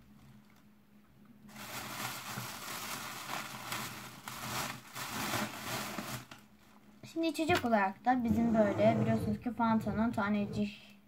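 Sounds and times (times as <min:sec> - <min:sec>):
plastic wrapper crinkling: 0:01.5 - 0:06.6.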